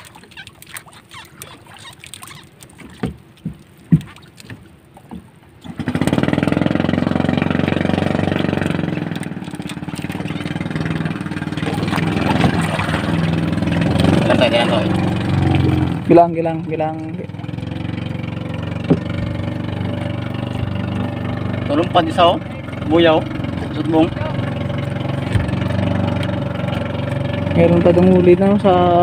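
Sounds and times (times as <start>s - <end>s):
small boat engine running: 0.0s - 29.0s
knocks on wooden boat: 3.0s - 5.3s, 18.8s - 19.4s.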